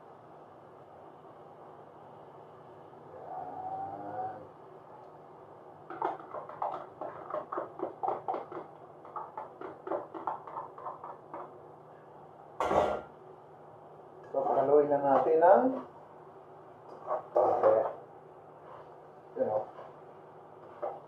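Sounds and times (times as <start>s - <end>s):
spoon knocking on plastic container: 5.9s - 11.6s.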